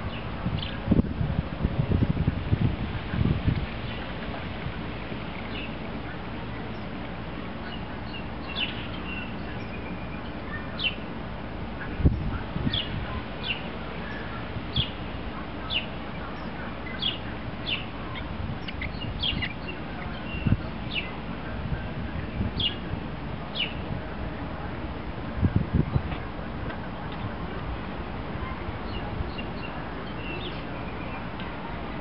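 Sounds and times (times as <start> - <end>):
small bird chirping: 7.6 - 11.0, 15.6 - 21.2.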